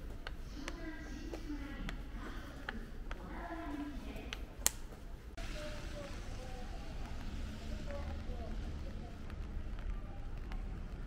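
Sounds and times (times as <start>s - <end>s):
clicks: 4.1s - 5.0s.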